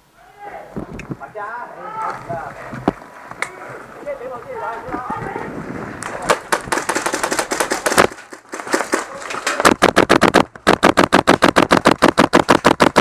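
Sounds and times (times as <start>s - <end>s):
airsoft rifle firing full-auto: 6.3s - 9.0s, 9.6s - 13.0s.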